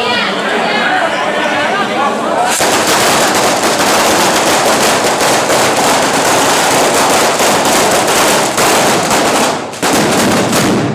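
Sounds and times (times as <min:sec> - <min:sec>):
firecrackers crackling: 0:02.4 - 0:10.9
spray of sparks: 0:02.5 - 0:09.2.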